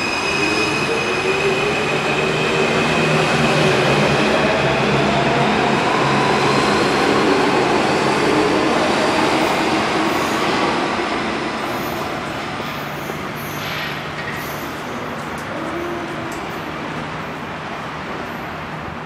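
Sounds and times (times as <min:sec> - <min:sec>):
metro train running: 0:00.0 - 0:19.0.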